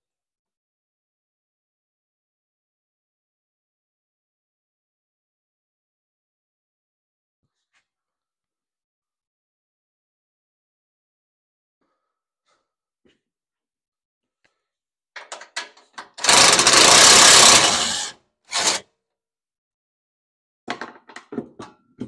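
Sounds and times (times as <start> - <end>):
metal parts clicking and clattering: 15.2 - 18.8
impact driver hammering on bolt: 16.2 - 18.8.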